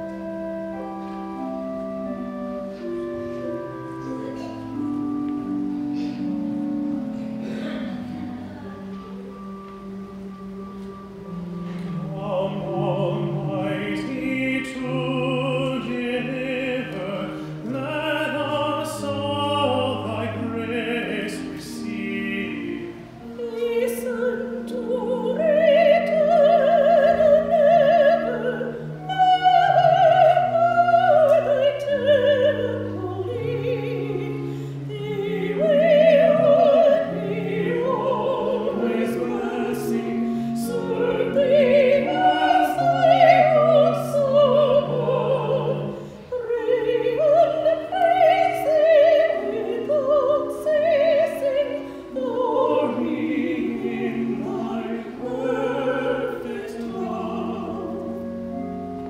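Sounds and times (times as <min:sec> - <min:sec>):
low held accompaniment notes: 0:00.0 - 0:59.0
man and woman singing duet: 0:11.9 - 0:58.9.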